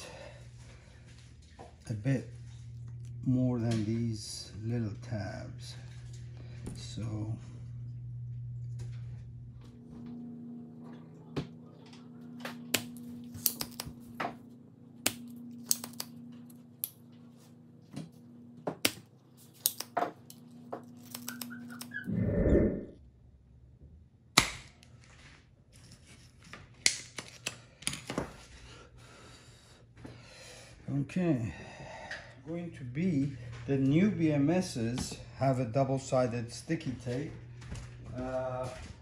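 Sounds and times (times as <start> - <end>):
steady low hum: 0.0 - 25.7, 26.3 - 39.0
soldering tools clicking and snapping: 12.7 - 14.0, 15.0 - 17.0, 19.6 - 20.4.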